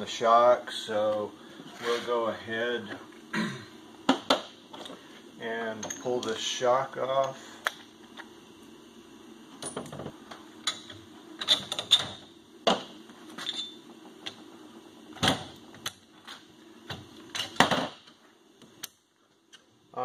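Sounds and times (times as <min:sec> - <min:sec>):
metal tools clicking and clanking: 0:05.8 - 0:06.4, 0:13.4 - 0:13.8.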